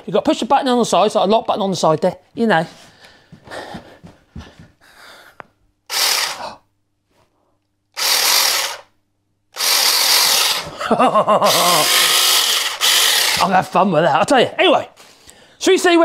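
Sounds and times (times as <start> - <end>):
cordless chainsaw running: 5.9 - 6.5, 8.0 - 8.9, 9.6 - 10.8, 11.4 - 13.8.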